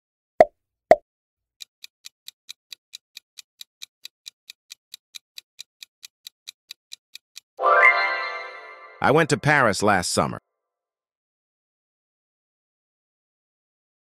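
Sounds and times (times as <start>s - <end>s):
clock ticking: 1.6s - 7.6s.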